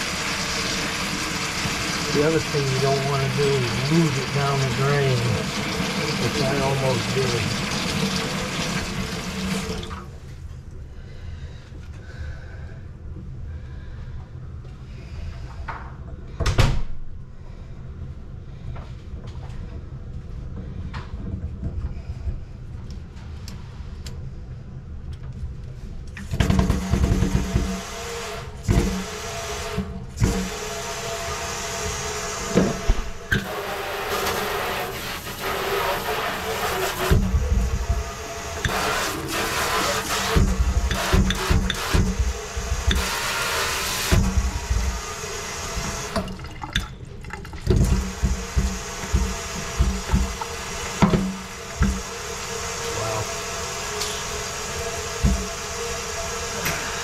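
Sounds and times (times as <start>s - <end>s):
water running into a metal sink: 0.0s - 10.2s, 26.4s - 57.0s
sprayer knocking against sink: 26.4s - 27.9s, 32.5s - 45.0s, 47.7s - 52.1s, 55.2s - 55.6s.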